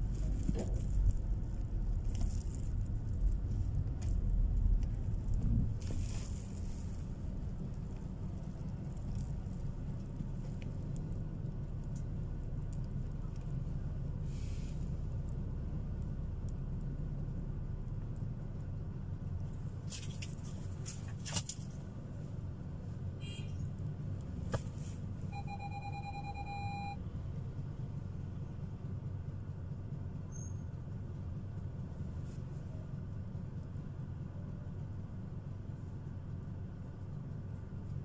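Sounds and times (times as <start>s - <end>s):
street traffic rumble: 0.0s - 38.0s
electronic beeps: 25.3s - 27.0s.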